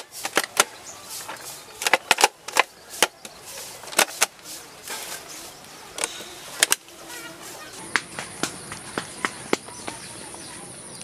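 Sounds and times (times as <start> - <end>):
plastic bottle crackling: 0.0 - 8.6.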